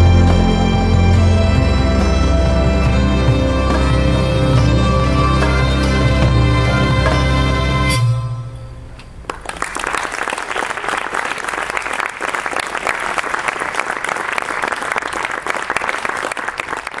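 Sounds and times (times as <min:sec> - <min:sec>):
live music: 0:00.0 - 0:09.2
audience applause: 0:09.3 - 0:17.0.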